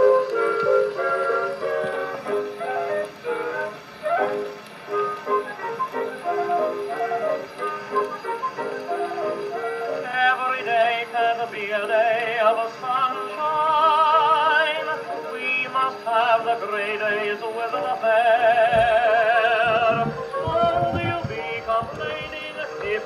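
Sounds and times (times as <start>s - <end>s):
thin band accompaniment: 0.0s - 10.2s, 18.5s - 23.0s
person singing with vibrato: 9.5s - 23.0s.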